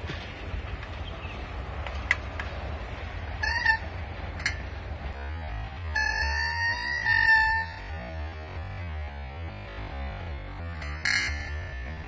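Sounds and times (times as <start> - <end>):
short high squeal: 6.0 - 8.1.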